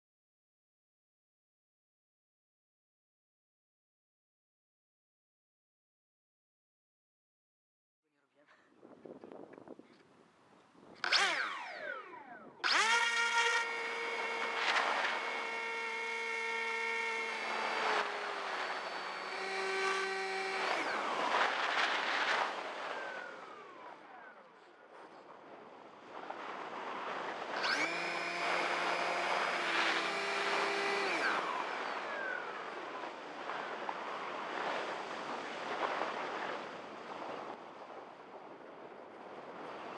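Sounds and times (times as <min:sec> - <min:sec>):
electric motor whine: 0:11.0 - 0:24.6, 0:27.0 - 0:34.7.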